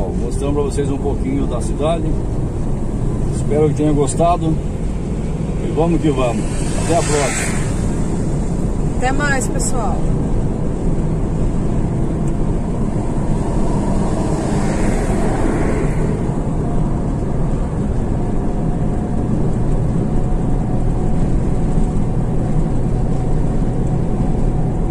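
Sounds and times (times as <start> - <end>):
vehicle engine and road noise: 0.0 - 24.9.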